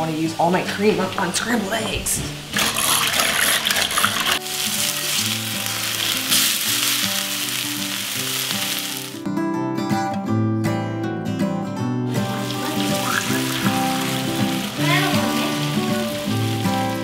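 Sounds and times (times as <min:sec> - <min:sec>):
soft background music: 0:00.0 - 0:17.0
food sizzling in a skillet: 0:02.4 - 0:09.2, 0:12.1 - 0:17.0.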